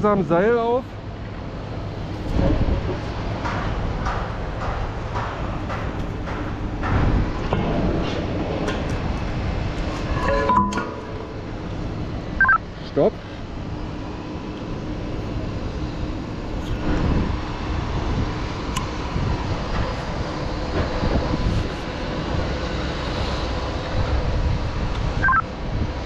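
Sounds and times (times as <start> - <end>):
running machinery: 0.0 - 26.0
wind rumble: 1.0 - 12.8, 13.4 - 26.0.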